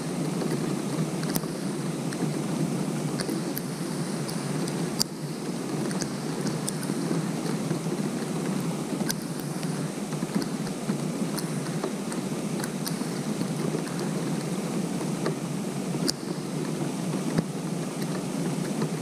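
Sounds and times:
rain hissing on pond: 0.0 - 19.0.

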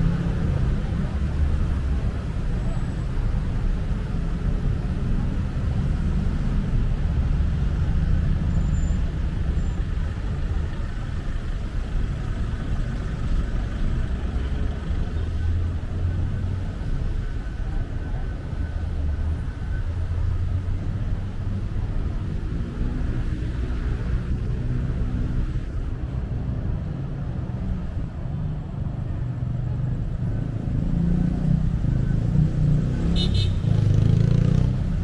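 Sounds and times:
city road traffic: 0.0 - 35.0
louder vehicle passing: 30.4 - 35.0.

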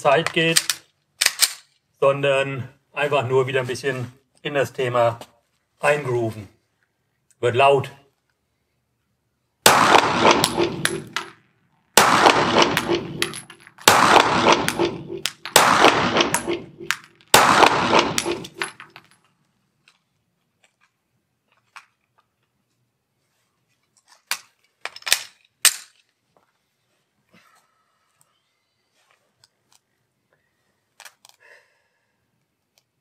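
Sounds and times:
pistol metallic clicks: 0.2 - 1.7, 12.0 - 18.9, 24.3 - 26.0
pistol shots echoing indoors: 9.7 - 11.2, 12.0 - 18.6.

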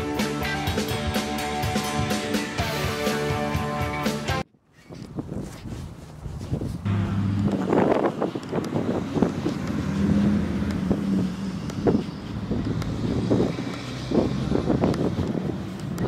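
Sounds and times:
footsteps on asphalt: 4.8 - 16.0
wind on microphone: 4.8 - 16.0
car engine humming: 6.8 - 16.0.

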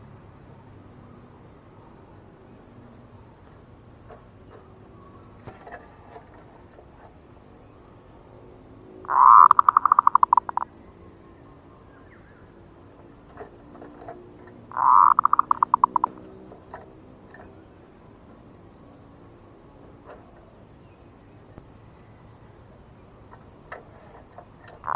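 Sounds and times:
dove cooing: 9.0 - 10.7, 13.2 - 17.5.

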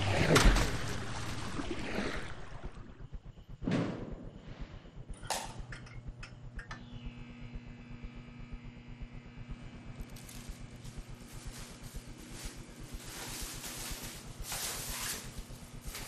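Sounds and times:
faint steady room hum: 4.4 - 16.0.

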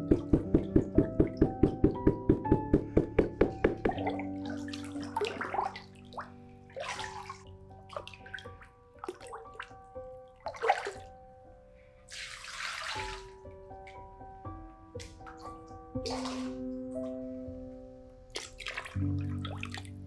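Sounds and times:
wooden sieve knocking: 0.0 - 4.4
clay slip sloshing: 0.0 - 11.2, 12.1 - 13.4, 15.0 - 16.7, 18.3 - 20.0
piano-like background music: 0.0 - 20.0.

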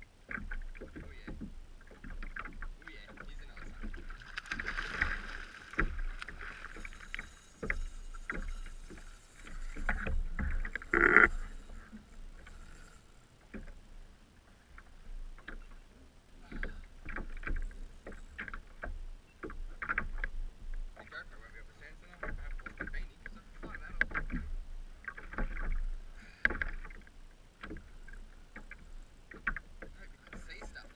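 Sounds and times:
water slapping against hull: 0.0 - 30.9.

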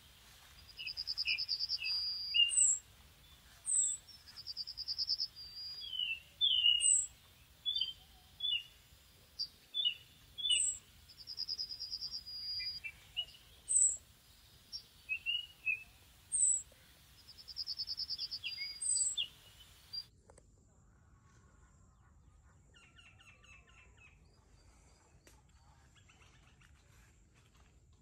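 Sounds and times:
small birds chirping: 0.0 - 20.1
fast bird trill: 0.6 - 2.8, 9.4 - 14.0.

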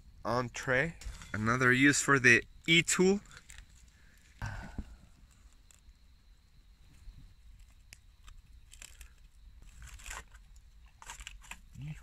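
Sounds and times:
aluminium foil crinkling: 7.6 - 11.7.

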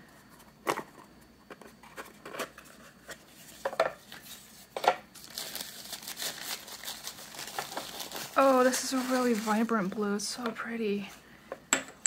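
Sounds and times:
paper rustling: 1.9 - 10.0.

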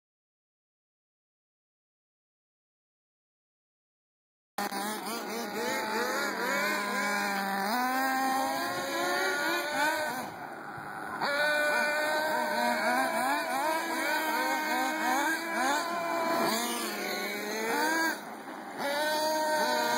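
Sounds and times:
model car engines revving: 4.6 - 19.9.

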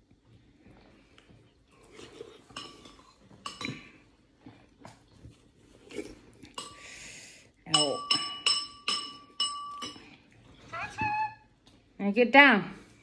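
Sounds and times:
cutlery and dishes clinking: 2.5 - 3.9, 7.8 - 10.2.

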